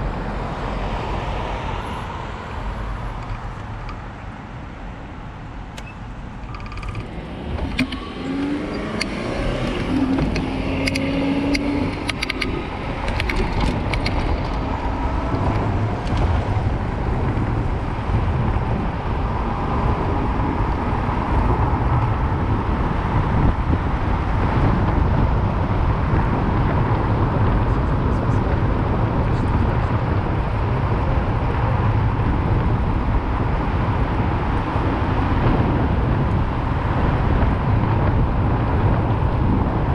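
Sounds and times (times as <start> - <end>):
low rumble on camera: 0.0 - 4.8, 6.3 - 39.9
passing car traffic: 0.0 - 39.9
wind and tyre noise: 0.0 - 39.9
bicycle clicks: 9.8 - 14.6.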